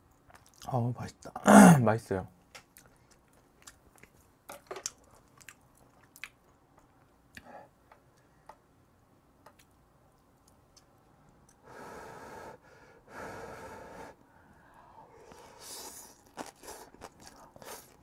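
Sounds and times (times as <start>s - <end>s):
small clicks of eating: 0.1s - 1.4s, 2.5s - 8.6s, 9.4s - 11.6s.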